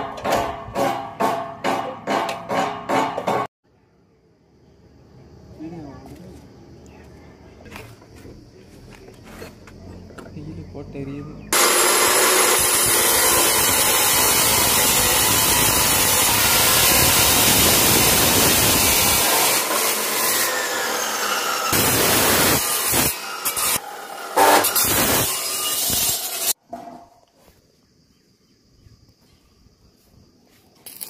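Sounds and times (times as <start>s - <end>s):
chop saw grinding through metal: 11.6s - 26.6s.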